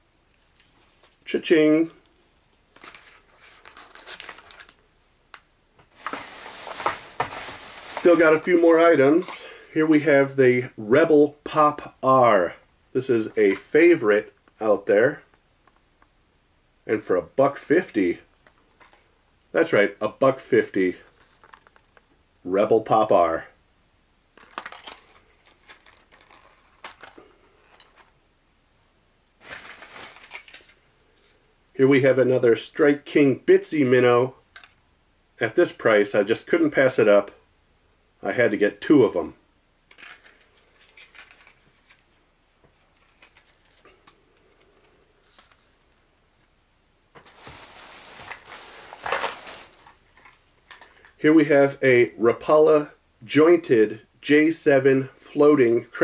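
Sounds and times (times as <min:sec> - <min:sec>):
plastic packaging clicks and rustles: 0:02.0 - 0:04.8, 0:21.0 - 0:22.1, 0:24.4 - 0:28.1, 0:29.4 - 0:30.8, 0:39.9 - 0:42.2, 0:42.8 - 0:45.8, 0:47.2 - 0:51.2
plastic bag rustling: 0:05.9 - 0:09.3, 0:24.4 - 0:28.1, 0:29.4 - 0:30.8, 0:47.2 - 0:51.2
plastic packages clicking: 0:24.4 - 0:27.2, 0:47.2 - 0:51.2.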